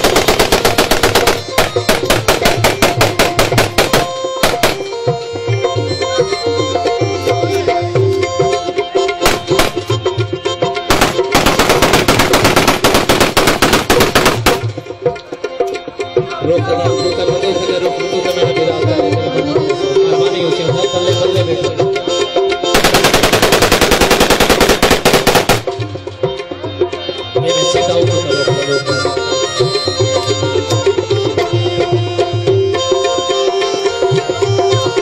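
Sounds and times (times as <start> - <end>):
automatic rifle fire: 0.0 - 4.9, 9.3 - 9.9, 10.9 - 14.7, 22.8 - 25.7
folk music with tabla: 0.0 - 35.0.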